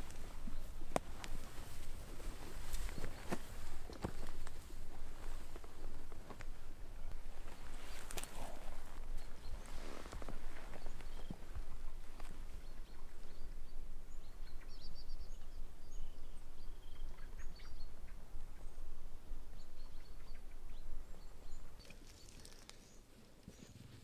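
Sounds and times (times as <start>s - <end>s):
faint bird chirps: 6.8s - 24.0s.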